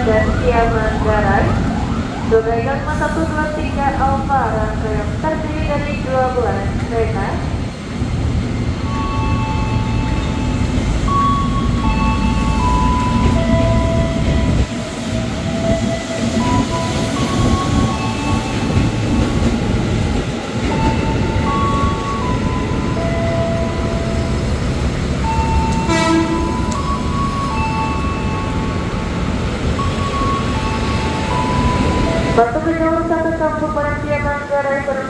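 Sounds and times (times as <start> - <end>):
train wheels rumbling on rail: 0.0 - 35.0
train horn blast: 25.8 - 26.8.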